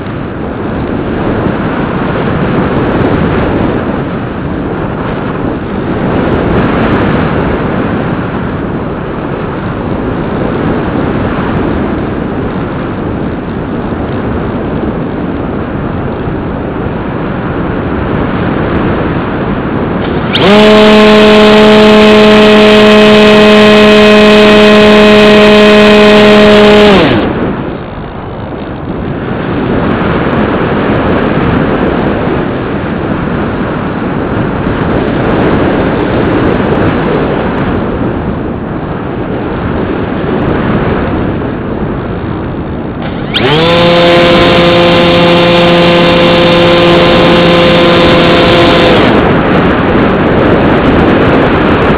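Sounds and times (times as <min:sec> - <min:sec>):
wind rushing: 0:00.0 - 0:51.9
electric motor propeller whine: 0:18.9 - 0:29.6, 0:42.8 - 0:51.9.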